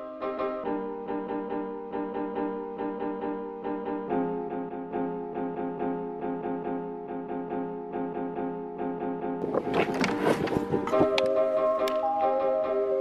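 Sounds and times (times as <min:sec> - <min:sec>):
keyboard playing pulsing chords: 0:09.4 - 0:13.0.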